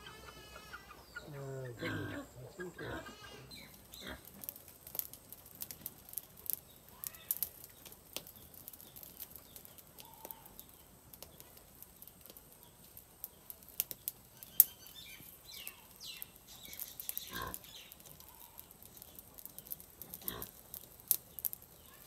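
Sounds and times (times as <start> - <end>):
wood fire crackling and popping: 3.5 - 22.0
faint bird chirps: 14.3 - 19.8.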